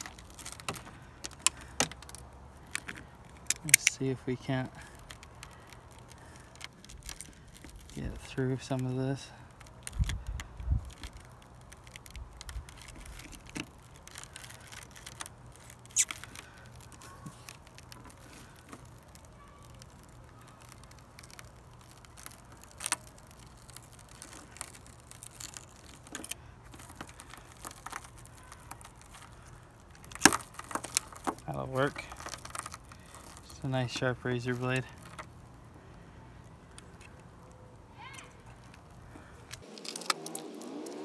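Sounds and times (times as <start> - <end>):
glass fragments crackling: 0.0 - 35.6, 38.6 - 41.0.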